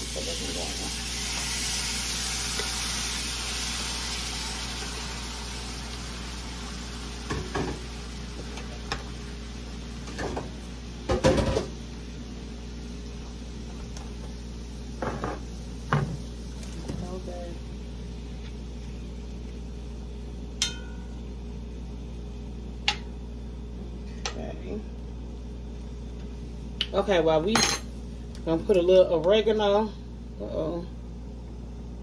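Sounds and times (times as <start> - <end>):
shrimp sizzling in a pan: 0.0 - 12.2.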